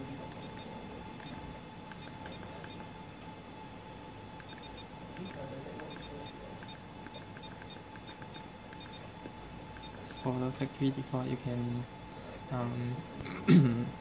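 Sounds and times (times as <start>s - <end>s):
faint hum: 0.0s - 14.0s
keypad button beeps: 0.3s - 2.9s, 4.4s - 9.1s, 9.8s - 10.3s.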